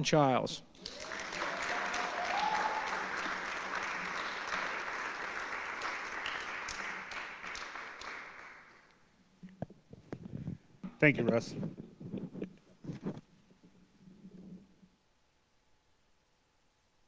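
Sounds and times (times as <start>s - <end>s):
audience applauding: 0.8s - 8.9s.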